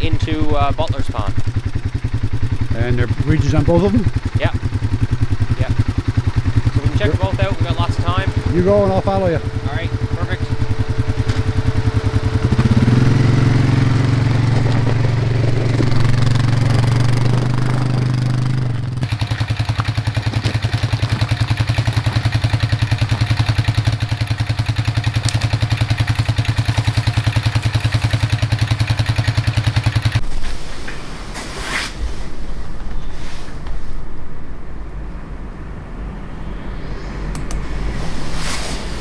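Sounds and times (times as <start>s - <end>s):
quad bike engine running: 0.0s - 30.2s
outdoor background noise: 0.0s - 39.0s.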